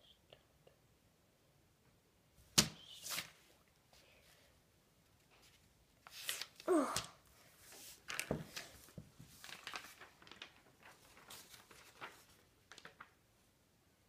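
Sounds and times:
paper rustling and crinkling: 5.3s - 13.2s.

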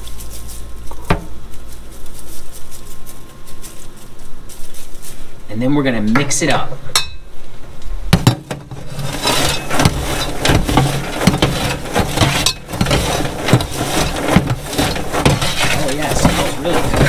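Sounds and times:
popcorn rustling: 0.0s - 6.0s, 8.1s - 17.0s
scoops scraping on metal: 8.2s - 17.0s.

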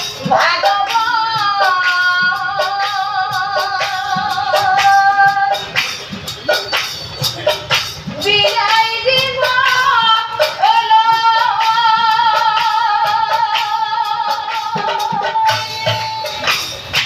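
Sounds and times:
woman singing devotional song: 0.2s - 5.8s, 8.2s - 16.6s
hand clapping: 6.6s - 7.1s, 15.9s - 17.0s.

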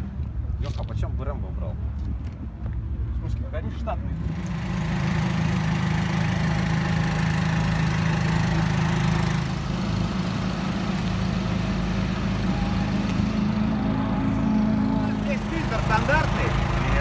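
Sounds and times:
engine idling: 4.3s - 17.0s.

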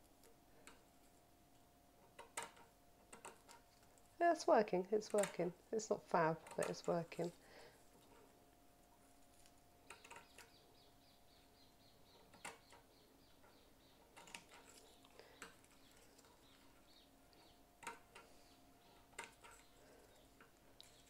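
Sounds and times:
scissors snipping netting: 6.4s - 7.3s.

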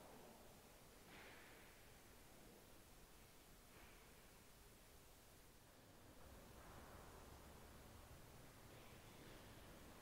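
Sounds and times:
faint background hiss: 0.0s - 10.0s.

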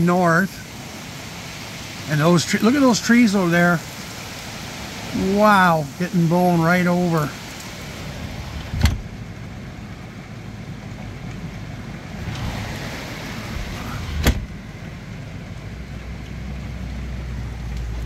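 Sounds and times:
heavy rain falling: 0.0s - 18.0s
wind: 0.0s - 18.0s.

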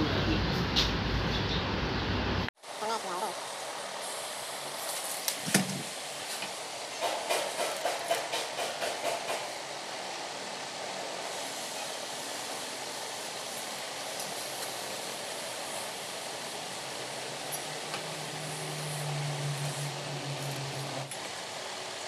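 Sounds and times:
steady background hiss: 1.8s - 22.0s
tools knocking and scraping on wood: 5.4s - 9.5s.

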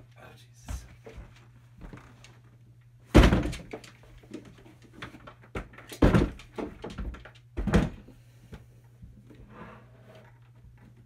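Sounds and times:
cooler thumping on wooden bench: 3.1s - 3.7s.

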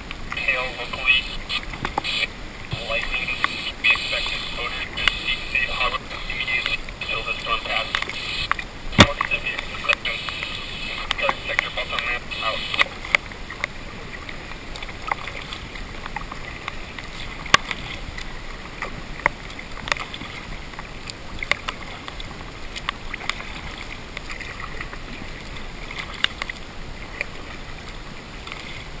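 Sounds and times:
canoe paddling hiss: 0.0s - 29.0s.

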